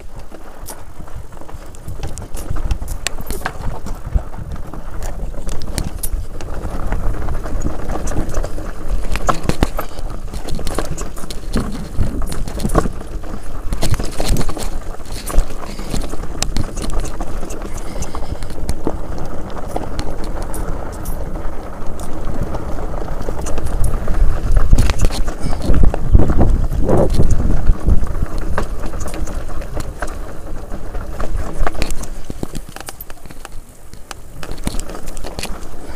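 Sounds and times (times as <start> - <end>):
bike rattling over bumps: 0.0 - 35.9
tyres crunching over stones: 0.0 - 35.9
wind rumble on microphone: 0.0 - 35.9.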